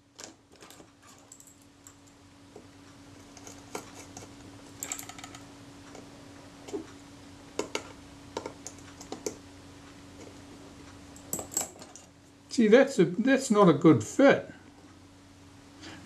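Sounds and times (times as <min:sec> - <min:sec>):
small metal parts clicking: 0:03.4 - 0:05.4.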